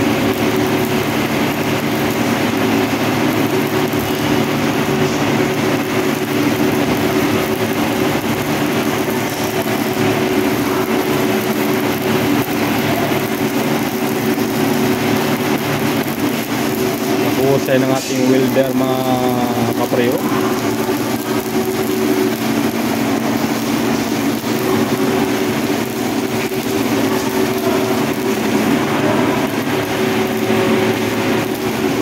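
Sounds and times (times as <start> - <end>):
machine hum: 0.0 - 32.0
welding arc crackling: 0.0 - 32.0.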